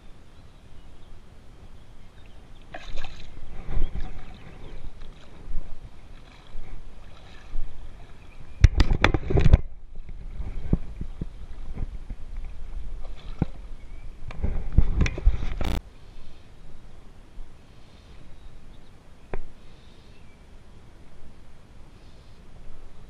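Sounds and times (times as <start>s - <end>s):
water lapping and splashing: 2.1s - 15.8s.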